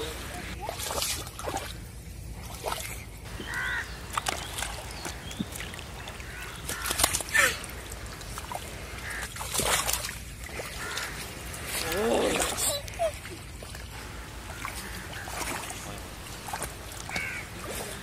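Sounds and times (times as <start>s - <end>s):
bird calls: 2.9s - 8.2s, 14.0s - 18.0s.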